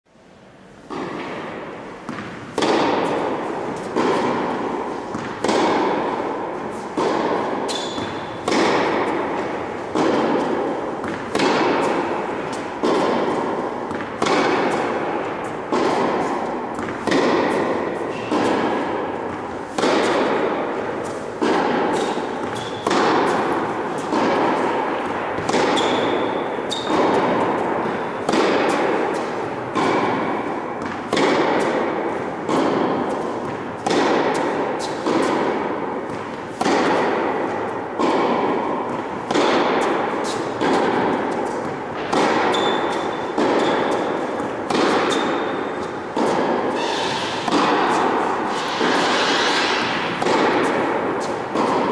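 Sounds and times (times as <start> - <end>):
racket hitting tennis ball: 0.6 - 51.9.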